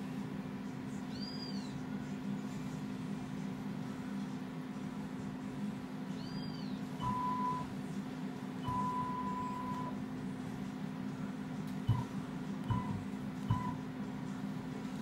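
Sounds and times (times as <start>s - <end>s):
constant low hum: 0.0s - 15.0s.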